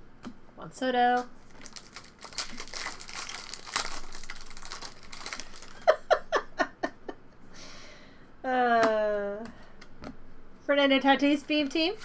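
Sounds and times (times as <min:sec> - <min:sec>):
foil wrapper tearing and crinkling: 0:01.5 - 0:05.9
person giggling: 0:05.6 - 0:07.2.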